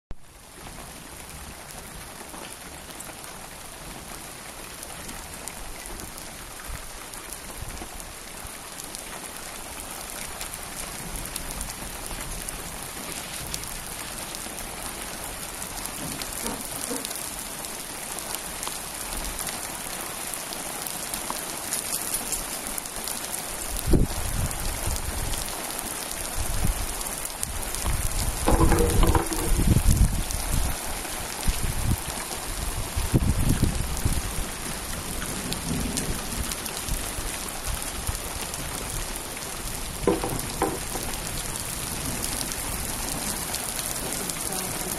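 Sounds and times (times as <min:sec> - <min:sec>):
rain falling on pool and pavement: 0:00.1 - 0:44.9
low thumps: 0:28.4 - 0:30.0, 0:40.0 - 0:41.2.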